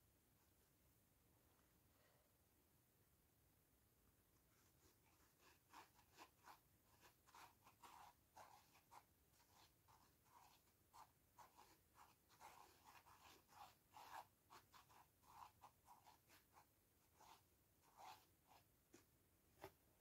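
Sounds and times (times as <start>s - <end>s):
sponge dabbing on phone case: 4.8s - 19.8s.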